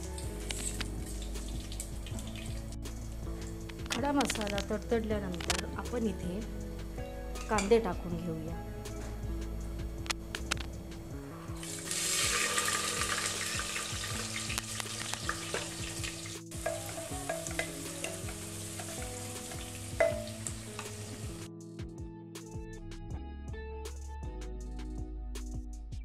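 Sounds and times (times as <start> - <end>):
onions sizzling in hot oil: 11.6 - 21.5.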